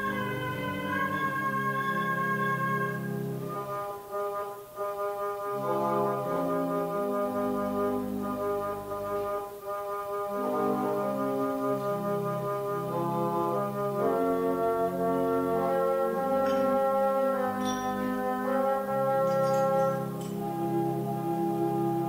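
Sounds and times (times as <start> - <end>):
church organ chords: 0.0 - 22.0.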